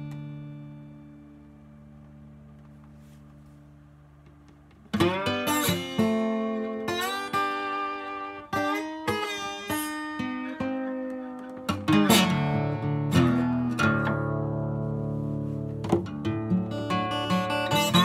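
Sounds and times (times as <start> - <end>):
fingerpicked acoustic guitar: 0.0 - 18.0.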